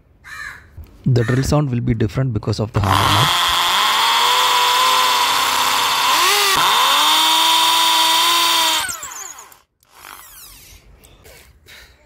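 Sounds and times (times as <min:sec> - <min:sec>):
hammer drill drilling into brick: 0:02.8 - 0:10.6.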